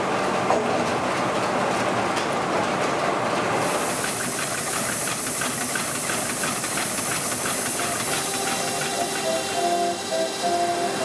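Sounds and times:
steam hissing loudly: 3.6 - 11.0
rapid even mechanical beat: 5.5 - 11.0
music: 8.0 - 11.0.

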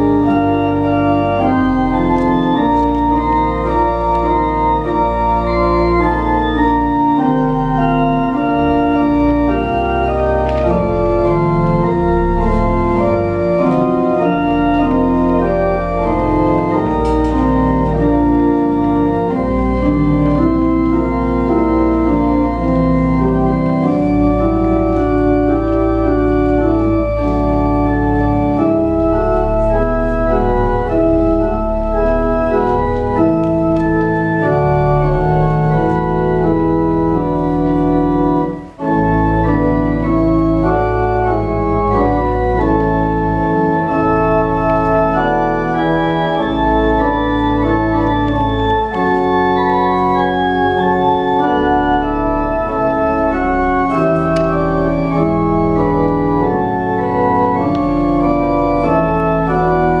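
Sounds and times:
church organ playing chords: 0.0 - 60.0.

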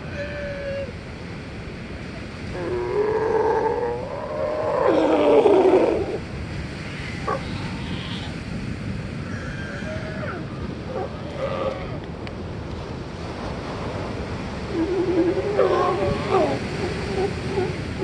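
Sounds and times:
ocean surf: 0.0 - 18.0
sea lions barking: 2.6 - 6.3, 7.1 - 8.4, 9.3 - 12.1, 14.5 - 18.0.

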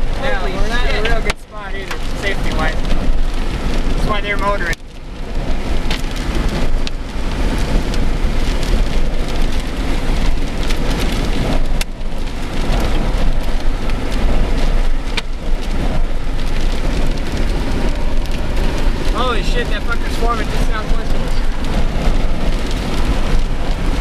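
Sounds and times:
heavy rain: 0.0 - 24.0
storm wind buffeting microphone: 0.0 - 24.0.

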